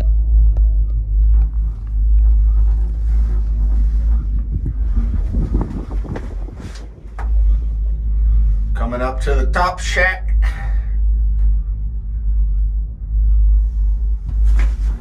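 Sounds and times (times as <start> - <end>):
wind buffeting microphone: 0.0 - 9.7.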